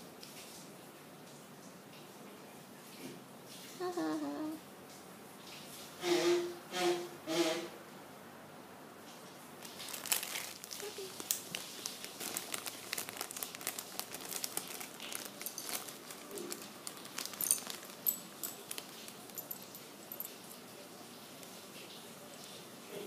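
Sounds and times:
plastic bag crinkling: 9.6s - 20.6s.

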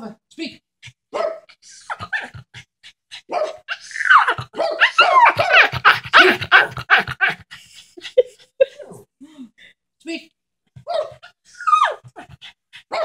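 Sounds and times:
small dog whining and yipping: 3.3s - 7.1s, 10.9s - 13.0s.

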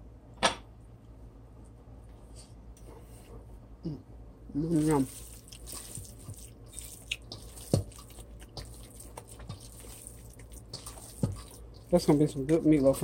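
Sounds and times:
hands squishing meat mixture: 4.6s - 13.0s.

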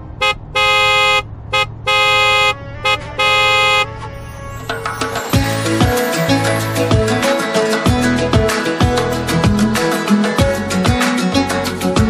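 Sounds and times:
car horn honking: 0.0s - 6.4s
music: 4.0s - 12.0s.

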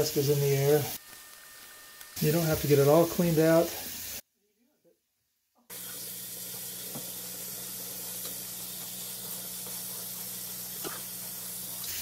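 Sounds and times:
faucet running into sink: 5.7s - 12.0s.

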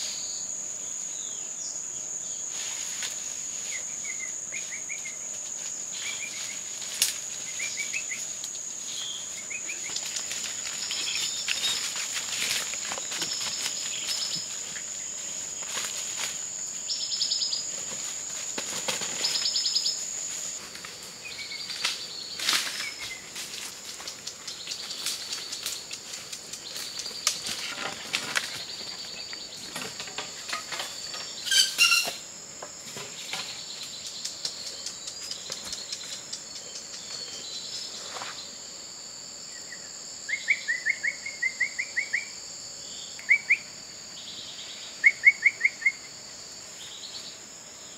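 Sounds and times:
high-pitched insect drone: 0.0s - 32.5s
footsteps in dry leaves: 9.8s - 14.6s.

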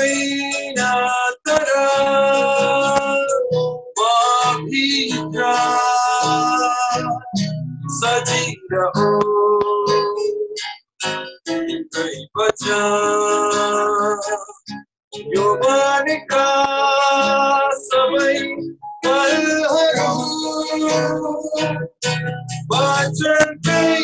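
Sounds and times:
man singing a hymn: 0.0s - 10.5s, 11.5s - 14.6s, 15.2s - 22.0s, 22.7s - 24.0s
acoustic guitar strumming: 0.0s - 24.0s.

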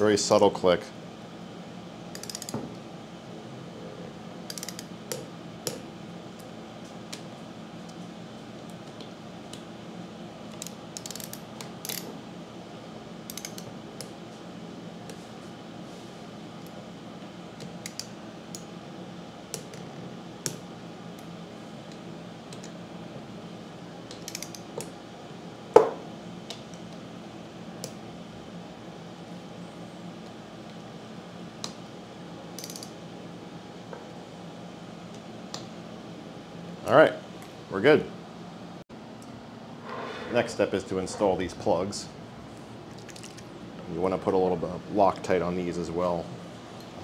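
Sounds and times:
torque wrench clicking: 2.1s - 2.5s, 4.5s - 4.9s, 10.6s - 12.0s, 13.3s - 13.7s, 32.6s - 32.9s.

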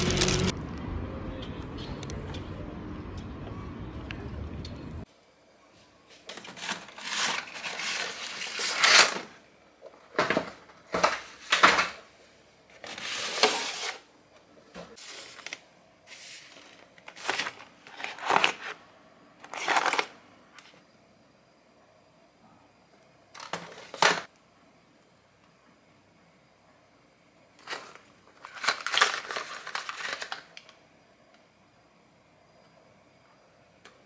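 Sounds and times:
cardboard boxes scraping and rustling: 12.8s - 14.0s.

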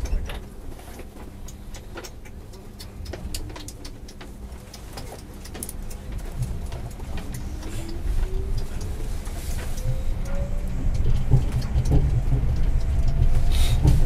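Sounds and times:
clicks and rattles: 0.0s - 8.9s
train cabin rumble: 0.0s - 14.0s
train drive whine rising: 5.1s - 14.0s.

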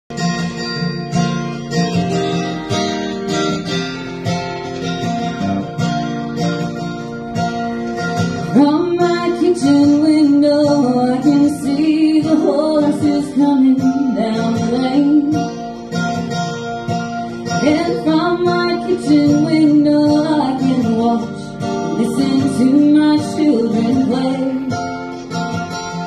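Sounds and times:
acoustic guitar strumming: 0.1s - 26.0s
woman singing: 8.4s - 15.7s, 17.3s - 25.0s.

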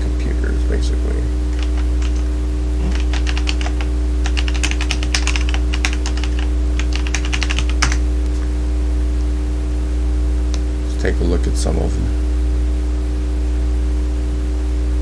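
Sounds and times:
low electrical hum: 0.0s - 15.0s
keyboard key clicks: 2.9s - 8.0s.

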